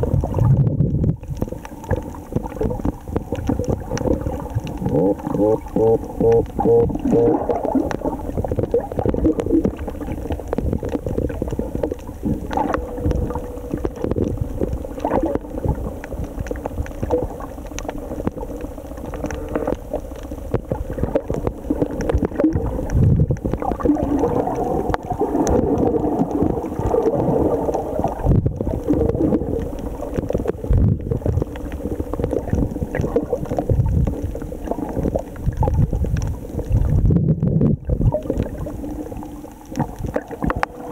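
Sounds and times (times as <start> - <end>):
low underwater rumbling: 0.0 - 40.9
underwater water sloshing: 0.0 - 40.9.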